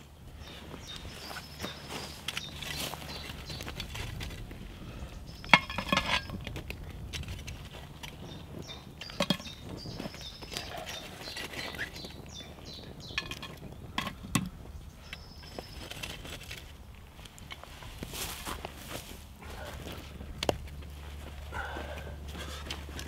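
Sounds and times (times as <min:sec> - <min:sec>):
metal pot lid clanking: 0:05.5 - 0:06.4, 0:13.2 - 0:14.5.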